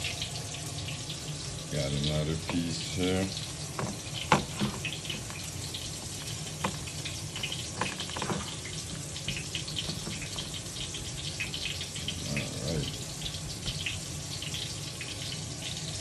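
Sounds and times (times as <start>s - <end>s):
fish frying in hot oil: 0.0s - 16.0s
oil popping and crackling: 0.0s - 16.0s.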